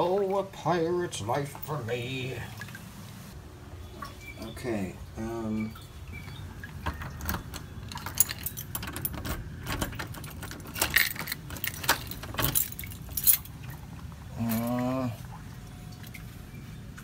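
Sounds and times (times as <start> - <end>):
keys jangling: 7.2 - 13.5.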